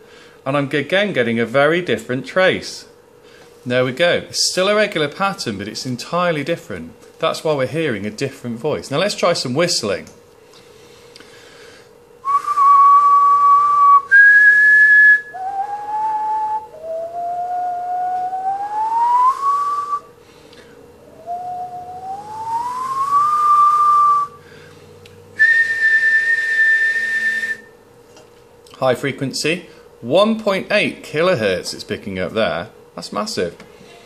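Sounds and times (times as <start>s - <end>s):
person whistling: 12.2s - 20.1s, 21.0s - 24.4s, 25.4s - 27.8s.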